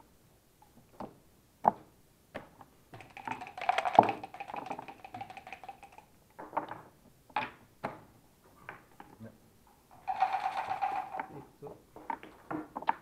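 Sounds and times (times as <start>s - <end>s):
checkers clicking on a board: 3.0s - 6.1s, 10.0s - 11.4s
dice rattling in a cup: 3.0s - 6.2s, 9.9s - 11.4s
dice clacking on a board: 3.0s - 7.6s.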